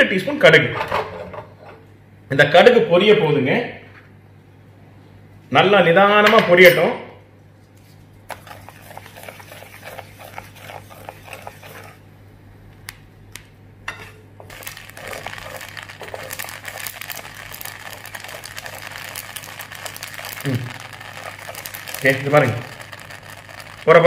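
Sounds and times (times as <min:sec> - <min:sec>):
mustard seeds popping in hot oil: 0:08.3 - 0:12.0, 0:14.4 - 0:24.0.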